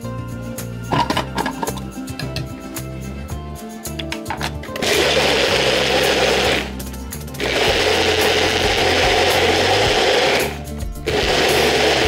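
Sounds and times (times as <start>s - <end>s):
blender running: 4.8s - 12.0s.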